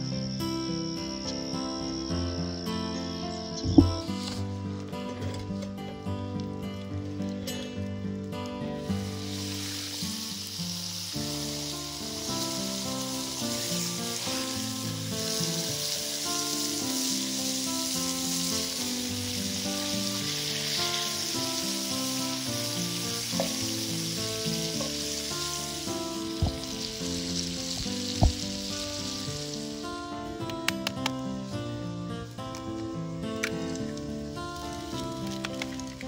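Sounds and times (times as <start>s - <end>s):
soft background music: 0.0s - 36.0s
sharp knock: 3.6s - 4.1s
bacon sizzling in a frying pan: 8.8s - 36.0s.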